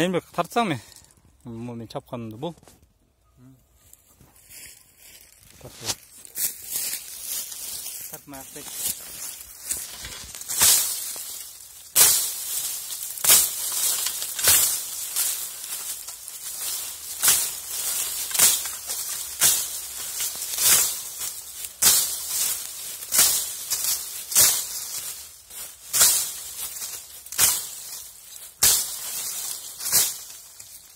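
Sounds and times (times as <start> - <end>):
shovel chopping canes: 9.7 - 30.9.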